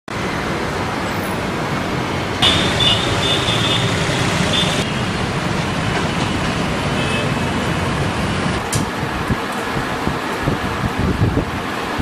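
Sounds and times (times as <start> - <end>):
city street traffic: 0.1 - 12.0.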